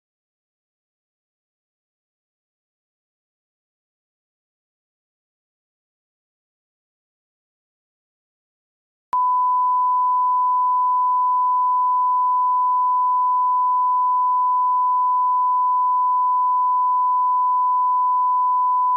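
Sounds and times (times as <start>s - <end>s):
steady test tone beep: 9.2s - 18.9s.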